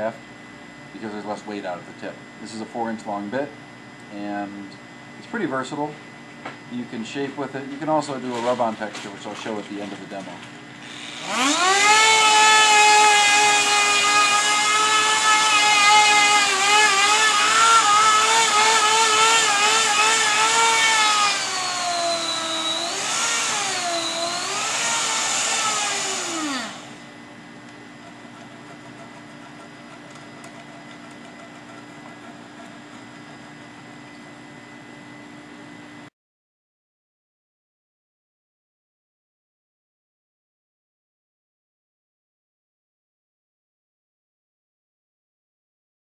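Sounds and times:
grinder whining while carving wood: 10.8 - 27.0.

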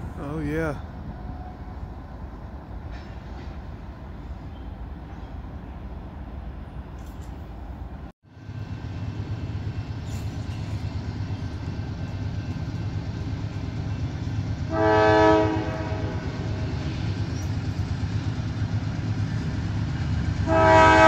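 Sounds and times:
diesel locomotive rumbling: 0.0 - 21.0
train air horn blast: 14.7 - 16.8, 20.4 - 21.0.

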